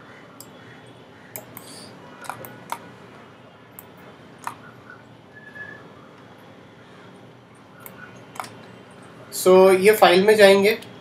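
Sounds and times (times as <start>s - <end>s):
computer mouse clicks: 1.3s - 2.9s, 3.8s - 4.7s, 7.8s - 8.7s.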